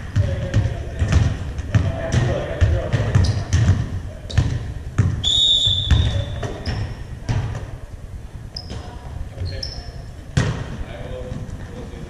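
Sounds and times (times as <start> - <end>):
ball bouncing on wooden floor: 0.0 - 5.2, 5.8 - 7.7.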